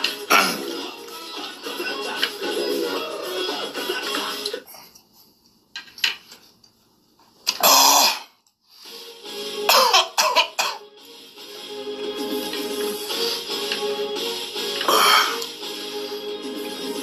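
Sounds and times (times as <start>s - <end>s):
man coughing hard: 9.7s - 10.8s.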